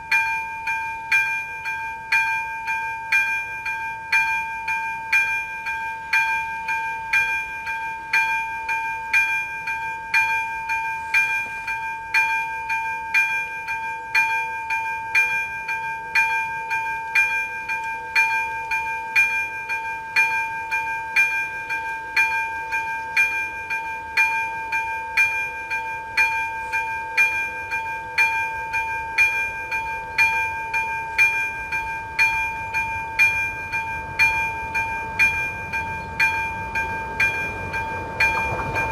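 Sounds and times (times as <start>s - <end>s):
approaching train rumble: 31.1s - 38.9s.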